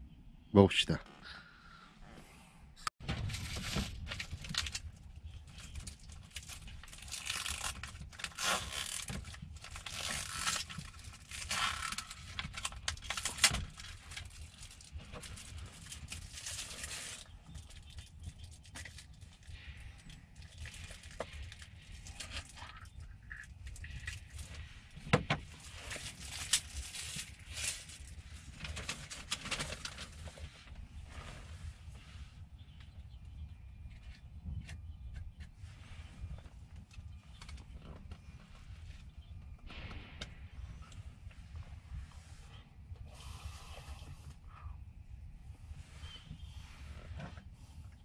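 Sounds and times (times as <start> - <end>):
low steady hum: 0.0 - 48.0
packaging crinkling: 3.3 - 19.4, 25.8 - 30.2
plastic film peeling and tearing: 3.4 - 19.2, 25.8 - 30.2.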